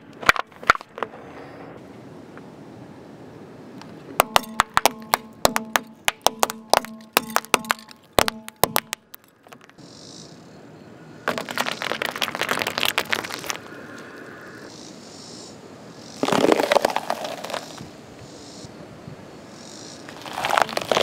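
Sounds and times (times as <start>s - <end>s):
tomatoes crushed crackling: 4.2s - 9.8s, 11.3s - 13.6s, 16.3s - 17.8s, 20.2s - 21.0s.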